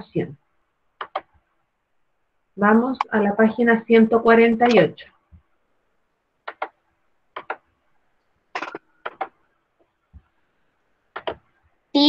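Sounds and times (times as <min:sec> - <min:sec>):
computer mouse clicking: 0:01.0 - 0:01.3, 0:06.4 - 0:07.7, 0:08.6 - 0:09.4, 0:11.1 - 0:11.4.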